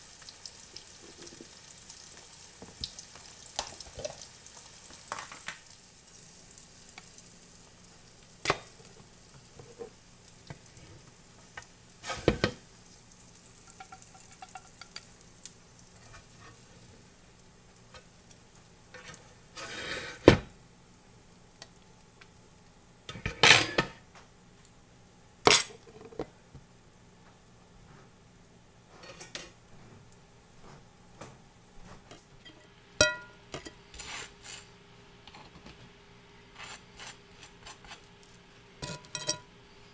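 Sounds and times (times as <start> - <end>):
eggs sizzling in grease: 0.0 - 23.1, 32.0 - 39.9
utensils and plates clattering: 38.8 - 39.5.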